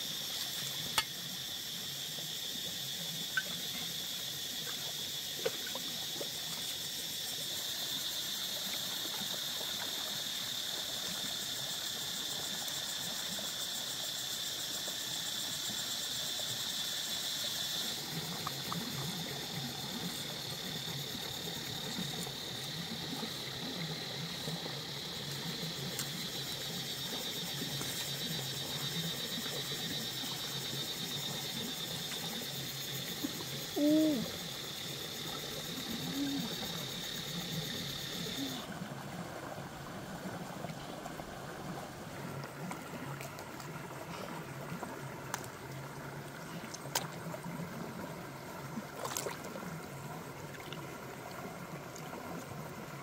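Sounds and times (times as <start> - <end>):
high-pitched insect chirring: 0.0 - 5.4, 11.3 - 38.6
shallow stream rushing: 34.4 - 53.0.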